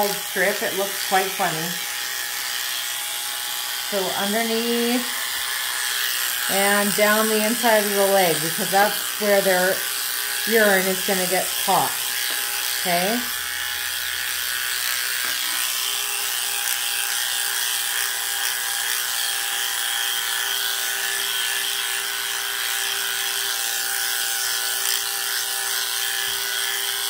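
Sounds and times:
electric clippers humming: 0.0s - 27.0s.

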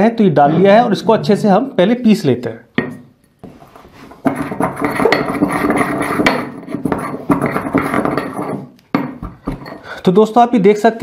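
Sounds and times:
pestle knocking and grinding in mortar: 4.1s - 9.9s.

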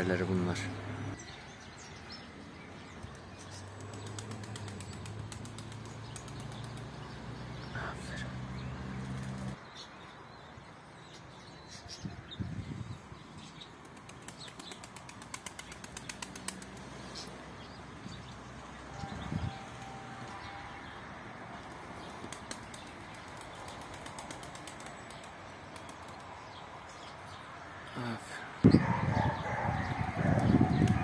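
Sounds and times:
pigeon wings flapping: 3.6s - 6.9s, 13.8s - 17.0s, 21.6s - 26.2s.

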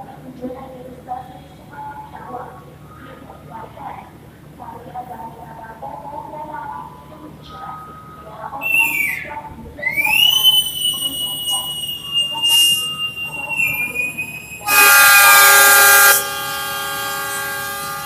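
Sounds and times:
high shrill whistle: 8.0s - 18.0s
diesel locomotive horn: 10.0s - 18.0s.

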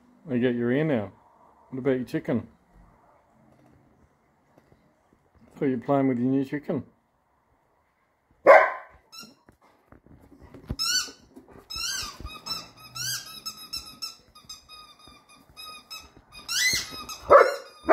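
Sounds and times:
dog barking: 8.4s - 9.0s, 17.3s - 17.9s
squeaky toy squeaking: 9.1s - 9.4s, 10.8s - 17.9s.

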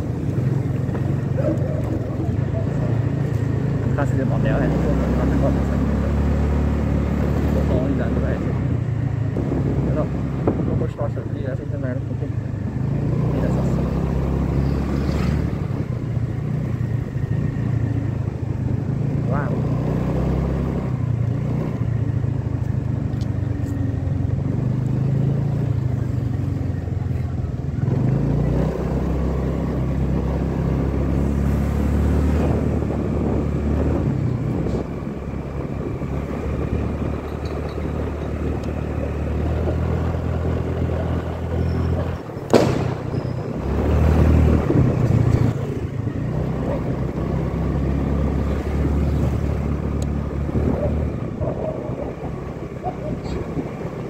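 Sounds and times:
road and wind noise: 0.0s - 54.0s
sharp bang: 42.5s - 43.5s.

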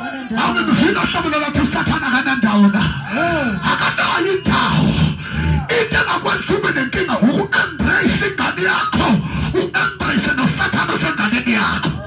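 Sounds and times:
man praying over loudspeaker: 0.1s - 12.0s
sharp breaths: 5.0s - 5.7s, 9.2s - 9.6s.

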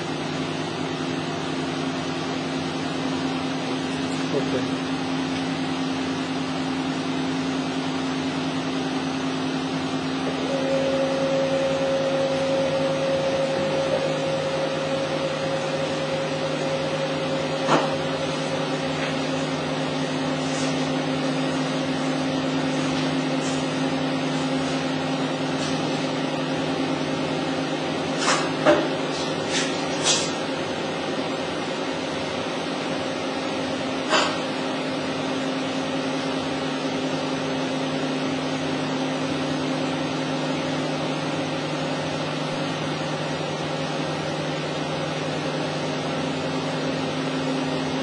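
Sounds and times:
testing machine humming: 0.0s - 48.0s
high steady tone: 10.3s - 27.6s.

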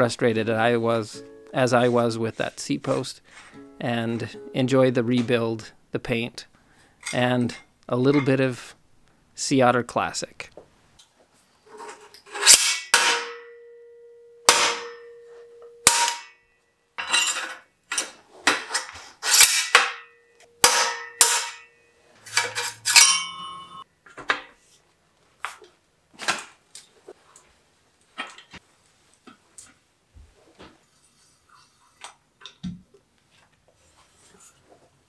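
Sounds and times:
steel tubing ringing: 12.4s - 16.4s, 19.5s - 23.8s
metal bicycle parts knocking: 22.3s - 23.8s.

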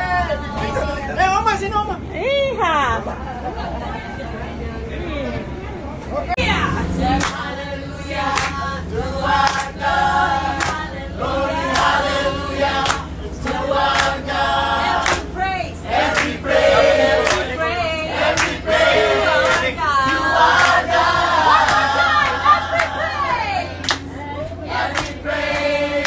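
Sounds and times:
bus low hum: 0.0s - 26.0s
group singing in chorus: 6.9s - 26.0s.

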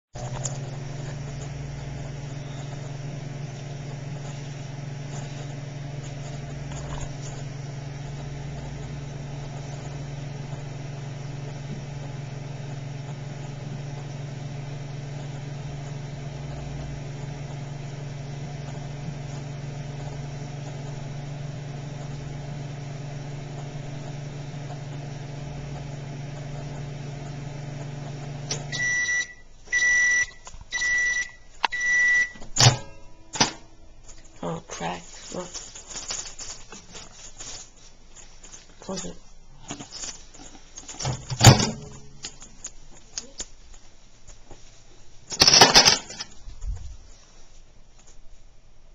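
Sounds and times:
microwave oven humming: 0.2s - 35.0s, 38.9s - 44.0s, 44.8s - 46.9s
microwave beeps: 2.2s - 3.2s, 28.4s - 33.6s.

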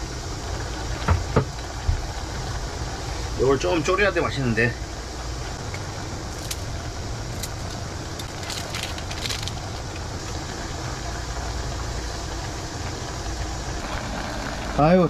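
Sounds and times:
gas stove hum and hiss: 0.0s - 15.0s
seasoning packet crackle: 6.3s - 10.4s.

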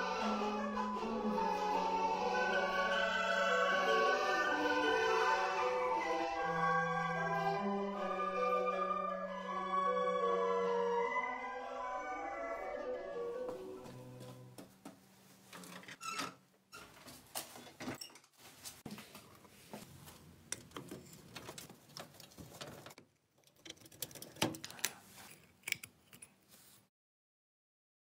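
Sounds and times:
hand tools clicking on metal: 23.4s - 26.4s.

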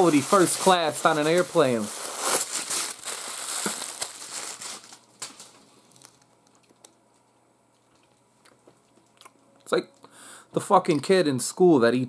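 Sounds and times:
crinkling and rustling handling: 0.0s - 9.2s.

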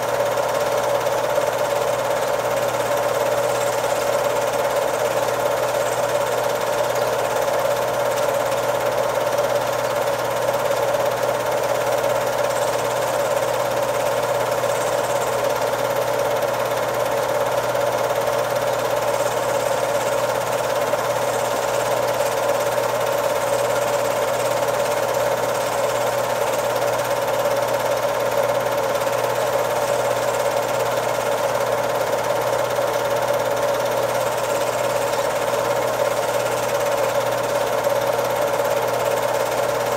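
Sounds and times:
film projector running: 0.0s - 39.9s.

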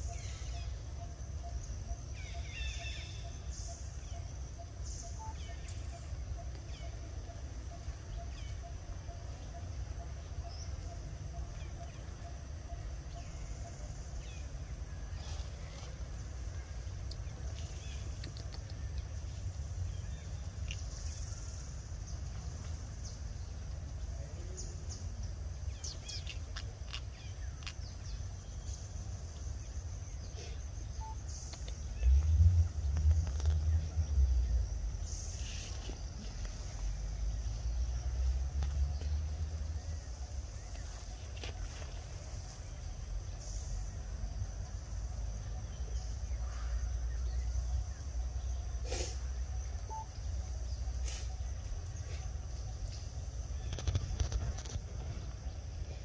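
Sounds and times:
bird chirps: 0.0s - 56.0s
insect drone: 0.0s - 56.0s
rustles and clicks: 53.4s - 55.6s.

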